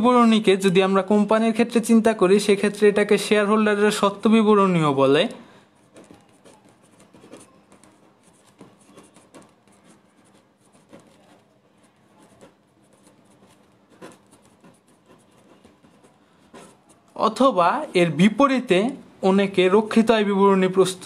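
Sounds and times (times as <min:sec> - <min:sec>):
pen scratching on paper: 0:05.7 - 0:18.6.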